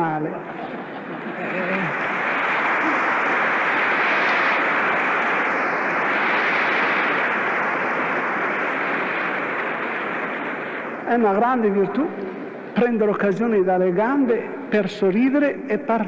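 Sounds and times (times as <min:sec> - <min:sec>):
audience laughing: 0:00.4 - 0:02.1
audience applauding: 0:00.5 - 0:06.4.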